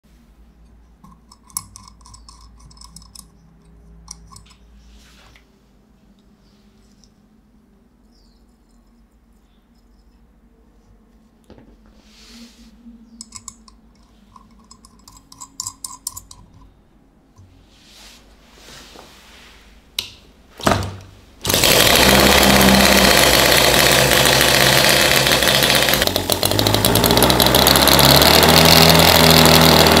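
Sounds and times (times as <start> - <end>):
model engine running loudly: 21.4 - 30.0.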